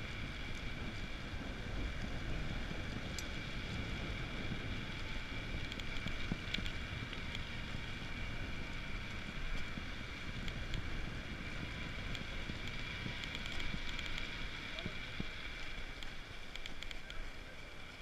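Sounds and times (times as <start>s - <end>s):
wind buffeting microphone: 0.0s - 16.9s
bike clicks and rattles: 0.0s - 18.0s
tyres rumbling on road: 0.0s - 18.0s.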